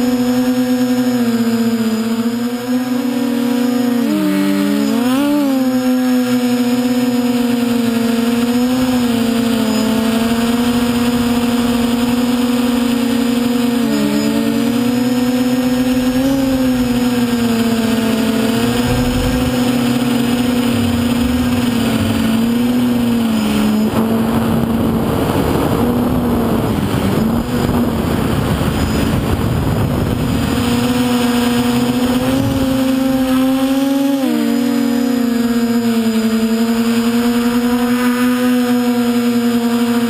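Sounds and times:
model aircraft motor and propeller: 0.0 - 40.0
rush of wind: 8.4 - 33.4.

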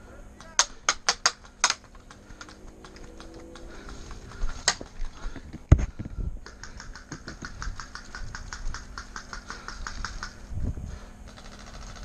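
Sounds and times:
gear knocking wooden fence: 0.4 - 10.5, 11.2 - 12.0
quick light ticks: 6.4 - 10.4.

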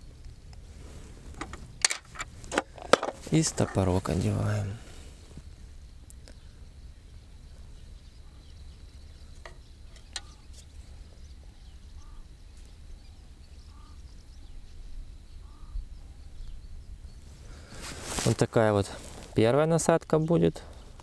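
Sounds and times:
faint short bird calls: 7.7 - 18.4.

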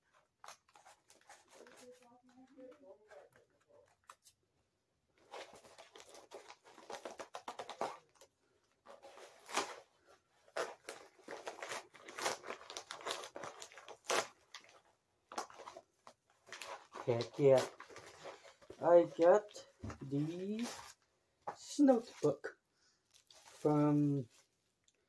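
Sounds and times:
paper envelope tearing and crumpling: 0.3 - 3.4, 5.2 - 15.8, 16.4 - 21.0.

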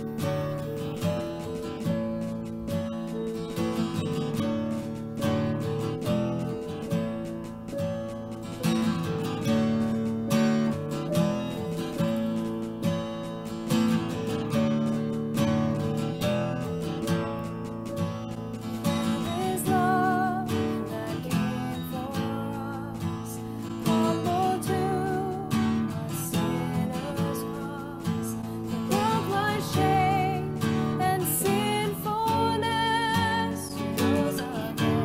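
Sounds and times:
piano: 0.0 - 35.0
strummed acoustic guitar: 0.0 - 35.0
woman singing with vibrato: 19.2 - 35.0.

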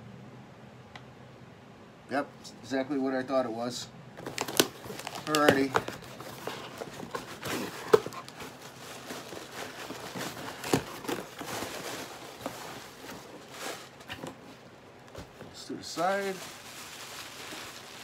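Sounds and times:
cardboard rustling and scraping: 4.2 - 18.0.

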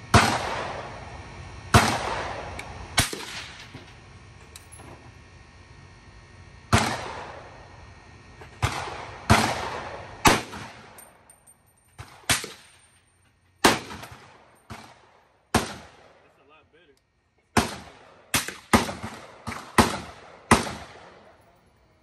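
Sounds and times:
rifle shots: 0.1 - 1.0, 1.7 - 3.9, 6.7 - 7.5, 8.5 - 11.0, 12.0 - 12.9, 13.6 - 16.3, 17.5 - 21.4.

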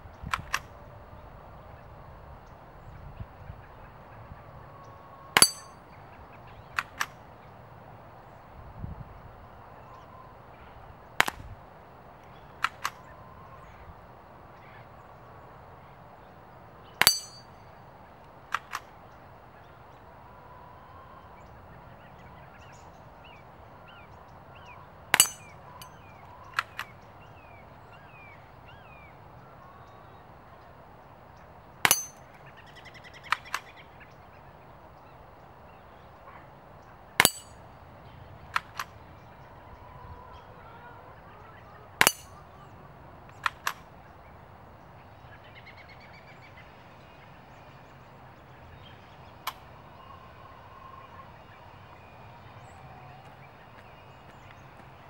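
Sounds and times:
quiet rifle clicks: 0.3 - 0.7, 6.7 - 7.2, 12.6 - 13.1, 18.2 - 18.9, 26.5 - 27.0, 33.2 - 33.8, 38.5 - 39.0, 43.3 - 43.8
bullet striking metal target: 5.4 - 5.8, 17.0 - 17.5, 25.2 - 25.9, 31.9 - 32.2, 37.2 - 37.6, 42.0 - 42.4
quiet rifle shots: 25.1 - 25.6, 37.2 - 37.6.

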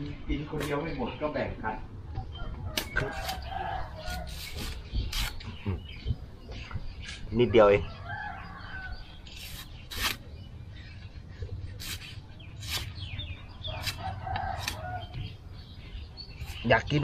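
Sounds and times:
rooster crowing: 3.0 - 4.3, 7.8 - 9.2, 13.7 - 15.2
knife chopping coconut husk: 13.8 - 14.0, 14.6 - 14.8.

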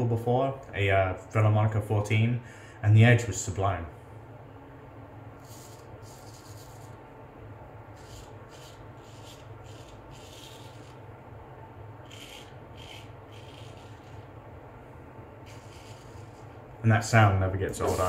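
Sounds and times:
straight razor rasping through stubble: 8.0 - 11.0, 12.0 - 14.3, 15.4 - 16.5.

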